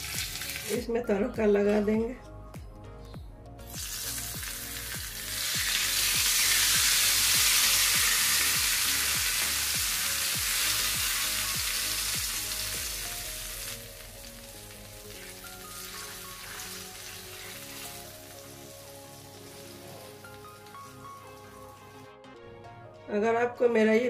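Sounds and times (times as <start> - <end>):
hot oil sizzling: 0.0 - 0.8, 3.6 - 22.0.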